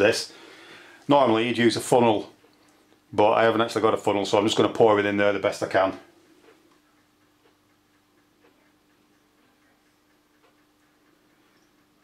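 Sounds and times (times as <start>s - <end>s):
low steady hum: 0.0s - 12.0s
faint sharp ticks: 5.9s - 12.0s.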